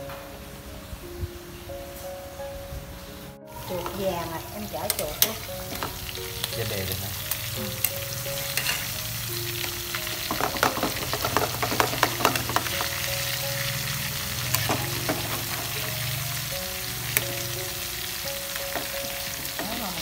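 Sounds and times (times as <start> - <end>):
meat sizzling in oil: 3.5 - 20.0
metal spatula scraping a pan: 7.8 - 9.0.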